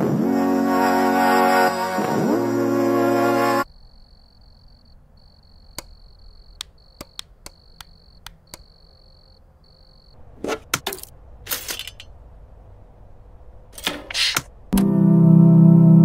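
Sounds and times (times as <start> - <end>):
sharp clicks: 5.7 - 8.8.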